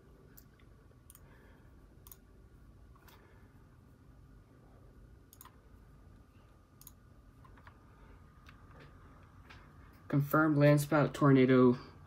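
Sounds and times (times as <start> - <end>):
faint steady hum: 0.0 - 12.0
computer mouse clicks: 0.3 - 1.3, 2.0 - 2.3, 5.3 - 5.6, 6.8 - 7.8.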